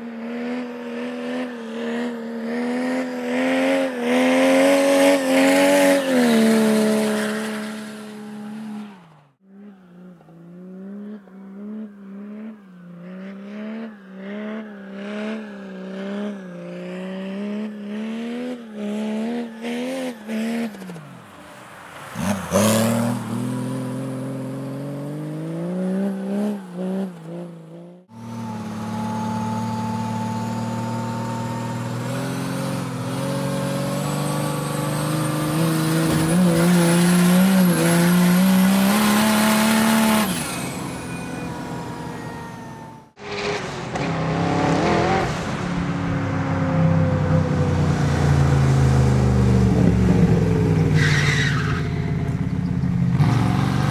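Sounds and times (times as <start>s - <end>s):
high whistle: 28.4s - 31.9s.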